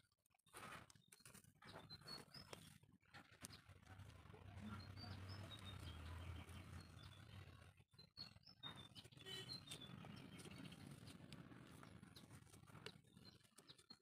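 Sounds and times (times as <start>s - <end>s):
high bird chirps: 4.7s - 11.2s.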